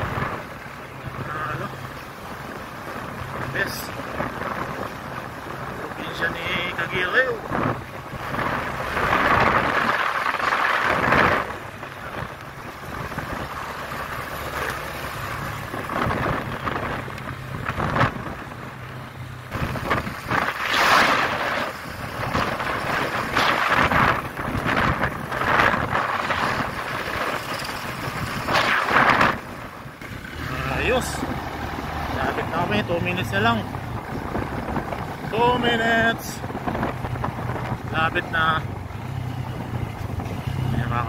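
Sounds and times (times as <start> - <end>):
wind buffeting microphone: 0.0 - 14.3, 14.9 - 41.0
motorcycle engine humming: 0.0 - 41.0.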